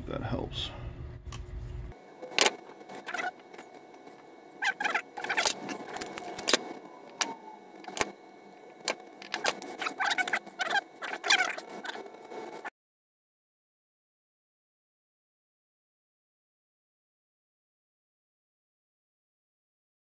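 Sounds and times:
wire cutters snipping: 0:04.7 - 0:08.1.

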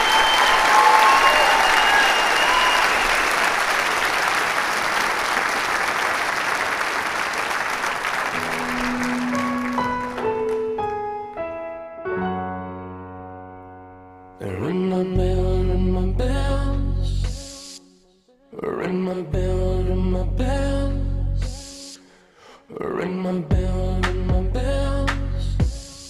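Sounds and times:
audience applauding: 0:00.0 - 0:11.2
slow music with sustained notes: 0:08.3 - 0:14.5.

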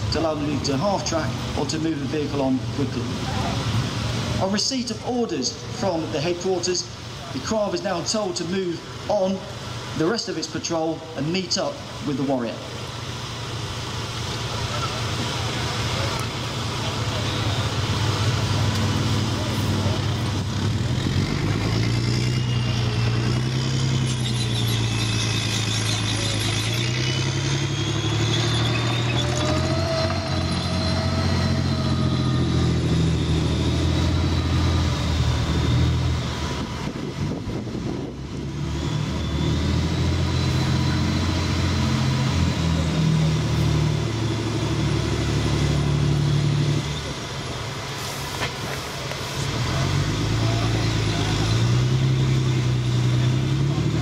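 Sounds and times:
diesel engine under load: 0:00.0 - 0:54.0
high whine: 0:17.1 - 0:42.9.

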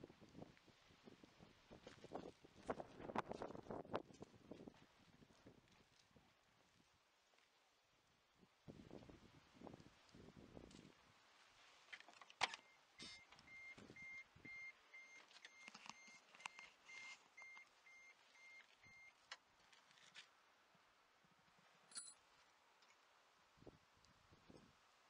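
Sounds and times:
faint warning buzzer beeping: 0:12.4 - 0:19.1.

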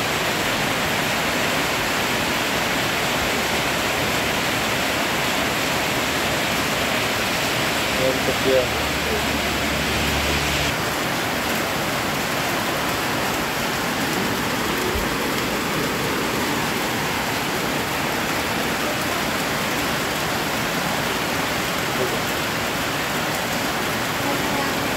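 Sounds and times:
heavy rain on a metal roof: 0:00.0 - 0:24.9.

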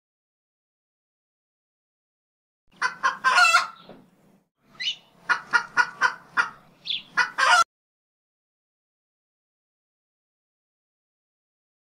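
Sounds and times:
chicken clucking and squawking: 0:02.7 - 0:04.0, 0:04.7 - 0:07.7.

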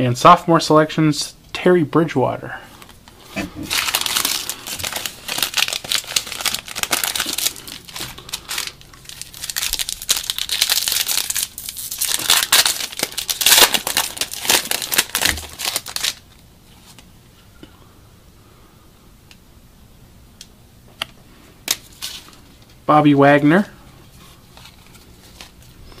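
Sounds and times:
foil wrapper crinkling and tearing: 0:03.6 - 0:16.4, 0:21.6 - 0:22.8, 0:24.4 - 0:25.8.

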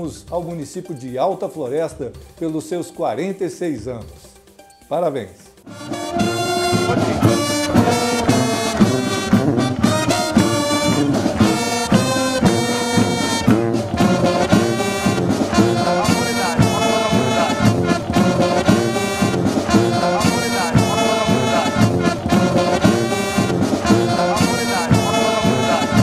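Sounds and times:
brass marching band: 0:05.7 - 0:26.0
steady drum beat: 0:05.7 - 0:26.0.

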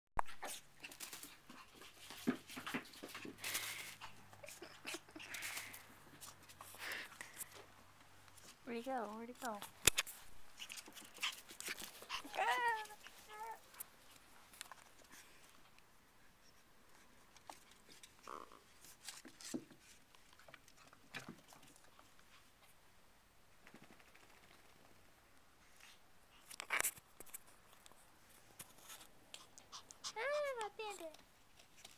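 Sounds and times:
puppy scuffling with rubber toy: 0:00.3 - 0:04.6, 0:08.4 - 0:15.4.

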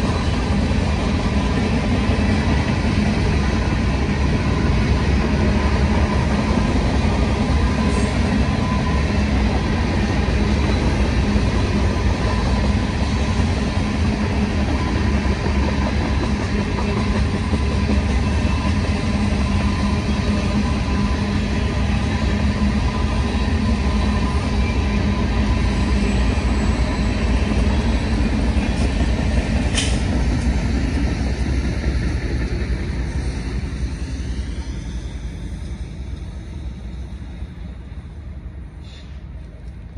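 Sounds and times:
diesel locomotive: 0:00.0 - 0:39.9
freight train rolling past: 0:00.0 - 0:39.9
sharp click: 0:29.7 - 0:30.1.

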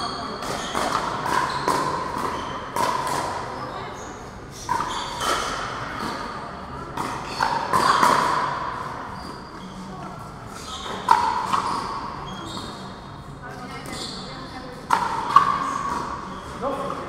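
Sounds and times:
paddles hitting plastic ball: 0:00.4 - 0:03.5, 0:04.6 - 0:08.9.

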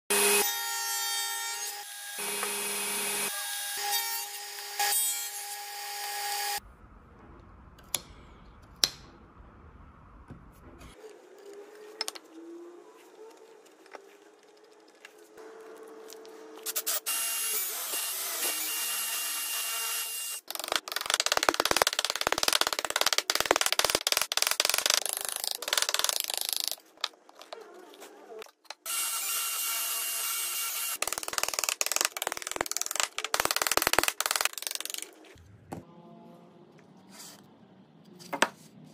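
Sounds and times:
table saw cutting wood: 0:00.1 - 0:06.6, 0:15.4 - 0:20.4, 0:28.8 - 0:31.0.

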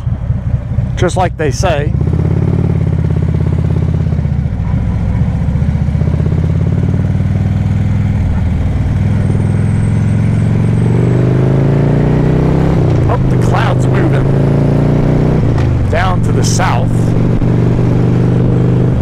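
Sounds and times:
motorcycle engine running: 0:00.0 - 0:19.0.

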